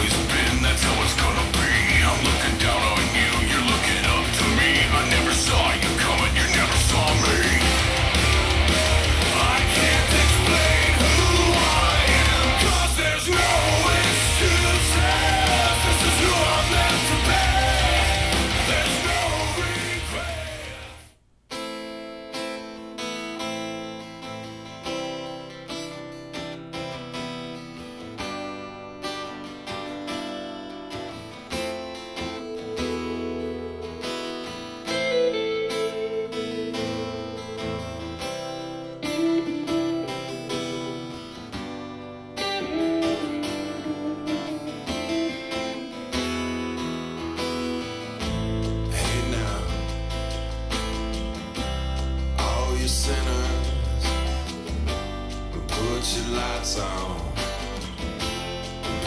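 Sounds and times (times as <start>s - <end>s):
loud rock music over loudspeakers: 0.0s - 21.0s, 42.4s - 59.0s
acoustic guitar with bass line: 0.0s - 59.0s.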